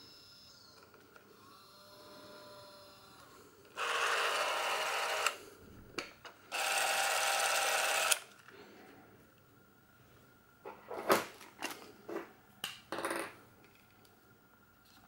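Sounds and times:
camera motor whirring: 0:01.3 - 0:05.4, 0:06.5 - 0:08.3.

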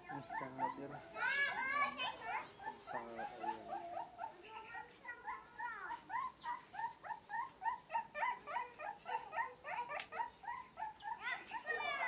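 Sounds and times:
puppy crying squeaky whimpers: 0:00.0 - 0:12.0.

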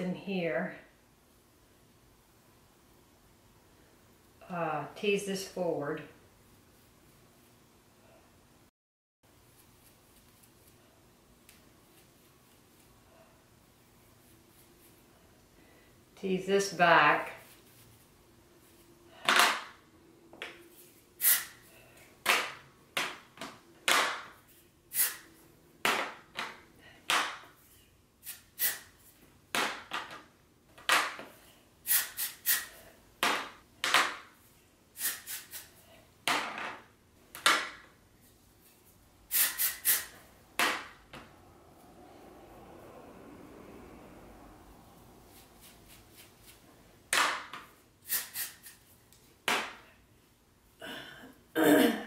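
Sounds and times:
comb rasping through hair: 0:45.3 - 0:46.7.

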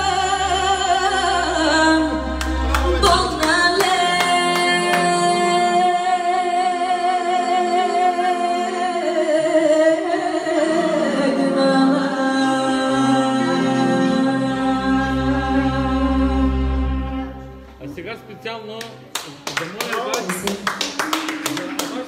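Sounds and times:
woman singing folk song: 0:00.0 - 0:17.2.

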